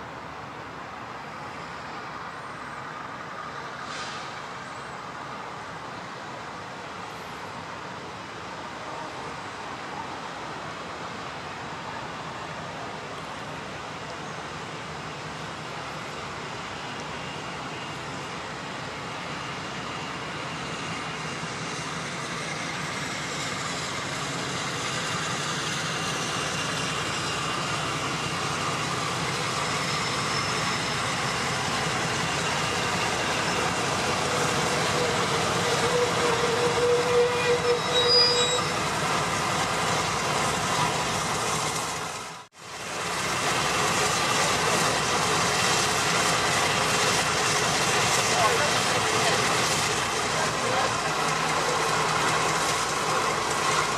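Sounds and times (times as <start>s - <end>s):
diesel locomotive running in: 0.0s - 53.9s
metallic wheel squeal: 29.3s - 38.9s.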